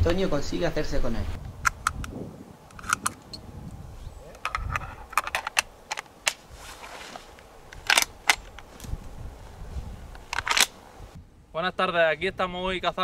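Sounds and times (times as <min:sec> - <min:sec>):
sharp clicks and snaps: 0:01.4 - 0:03.4
brief rustle: 0:04.4 - 0:09.1.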